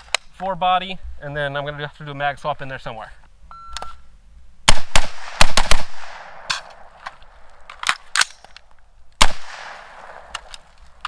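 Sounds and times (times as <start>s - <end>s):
rifle shot: 4.7s - 7.0s, 9.2s - 10.5s.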